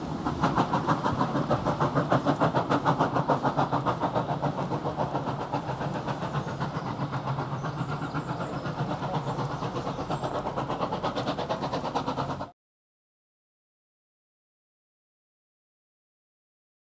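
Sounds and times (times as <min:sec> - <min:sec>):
steam locomotive chuffing: 0:00.0 - 0:12.5.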